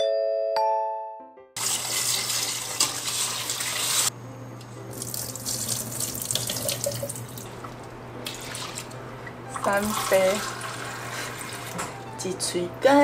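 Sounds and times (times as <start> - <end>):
water splashing into sink: 5.0 - 9.0.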